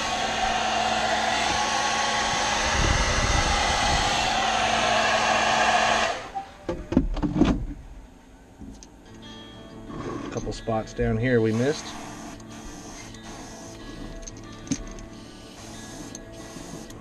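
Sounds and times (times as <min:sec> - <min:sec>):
hair dryer blowing: 0:00.0 - 0:06.4, 0:15.5 - 0:17.0.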